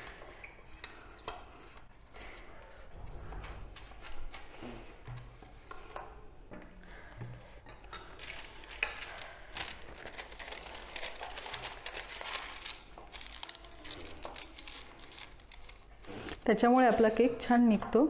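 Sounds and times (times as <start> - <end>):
paper crinkling and rustling: 8.2 - 16.3.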